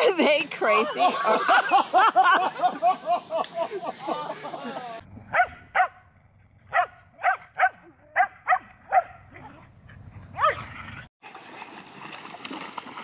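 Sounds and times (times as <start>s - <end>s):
running water hiss: 0.0s - 5.0s
dog barking high yips: 5.3s - 6.0s, 6.7s - 9.2s, 10.4s - 11.0s.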